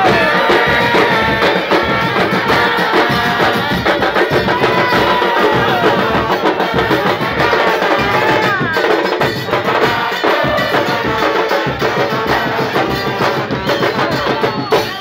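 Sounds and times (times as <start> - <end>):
brass band playing: 0.0 - 14.4
crowd voices: 0.0 - 15.0
pounding drumbeat: 0.0 - 15.0.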